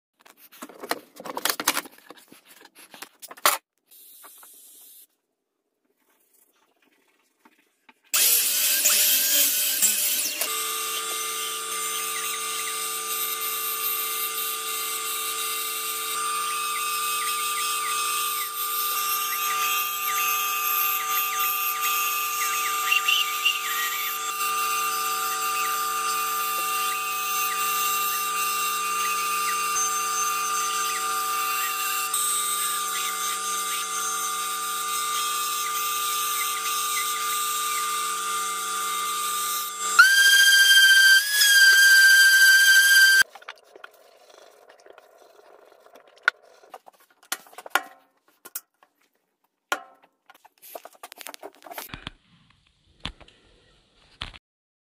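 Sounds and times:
bandsaw cutting wood: 8.2s - 43.3s.

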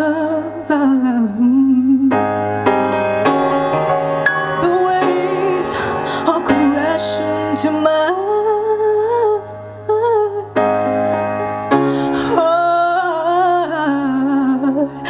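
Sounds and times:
woman singing: 0.0s - 2.3s, 4.6s - 11.0s, 11.9s - 15.0s
keyboard chords: 0.0s - 15.0s.

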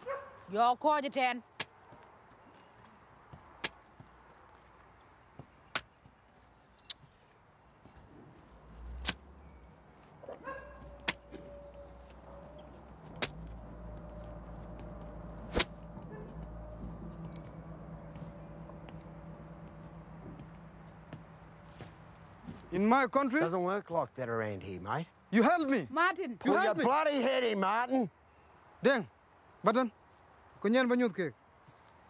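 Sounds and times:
faint steady tone: 7.6s - 22.8s
low steady hum: 7.9s - 23.8s
sharp single knocks: 13.0s - 13.5s.

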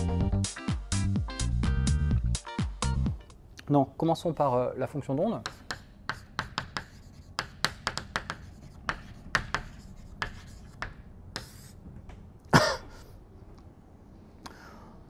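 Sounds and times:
chalk scraping: 5.4s - 11.8s
chalk tapping on blackboard: 5.4s - 11.8s
loud cough: 12.5s - 13.1s.

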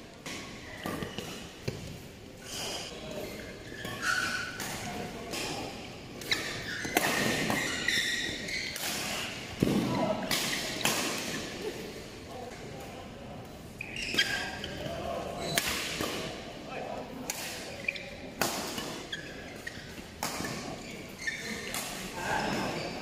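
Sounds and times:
shoe squeaks: 2.4s - 9.4s, 13.8s - 15.6s, 17.6s - 18.2s, 18.8s - 23.0s.

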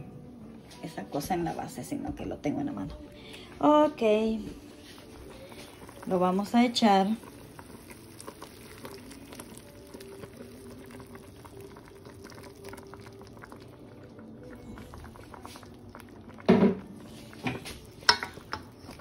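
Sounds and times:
pot simmering and bubbling: 4.0s - 19.0s
sauce pouring into pot: 5.2s - 19.0s.

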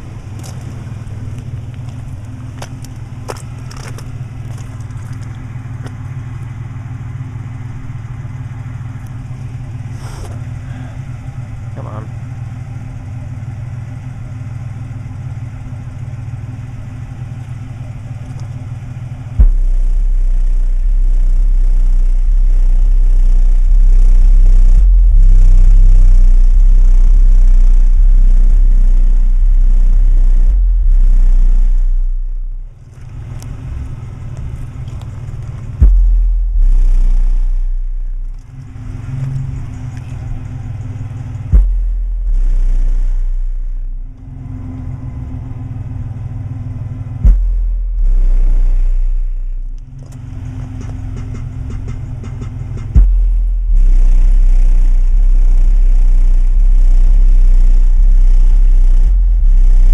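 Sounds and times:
deep sub-bass note: 19.3s - 32.9s, 35.7s - 50.1s, 50.8s - 59.9s
bass-heavy music through subwoofers: 19.3s - 33.0s, 35.6s - 59.9s.

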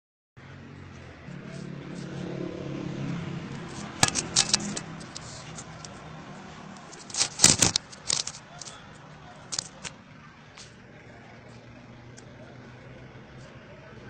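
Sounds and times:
sharp clicking and rattling: 3.5s - 6.1s, 6.7s - 10.0s.

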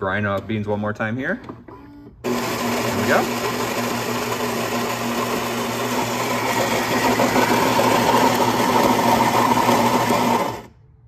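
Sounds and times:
coffee grinder whirring: 2.2s - 10.7s.

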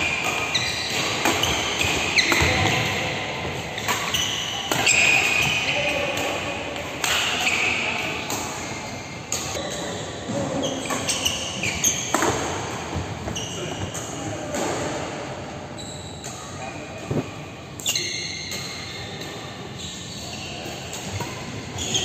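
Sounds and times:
shoes squeaking on court: 0.0s - 5.7s, 9.3s - 14.3s, 19.8s - 22.0s.

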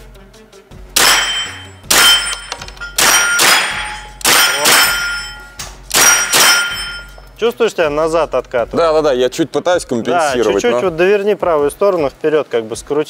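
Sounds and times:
rifle gunshots: 1.0s - 5.2s, 5.9s - 6.8s
steel target ringing ping: 1.0s - 7.3s.

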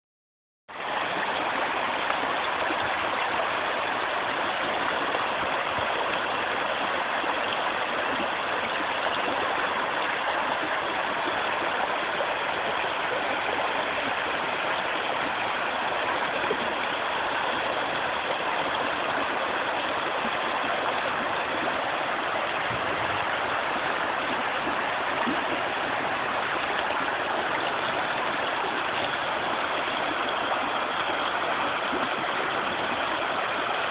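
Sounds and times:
river rushing over stones: 0.7s - 33.9s.

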